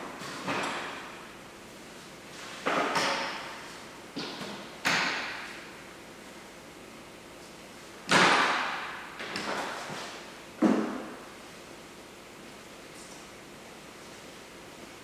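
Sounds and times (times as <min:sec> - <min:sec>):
metal clanks echoing in hall: 0:02.6 - 0:05.8, 0:08.1 - 0:09.9.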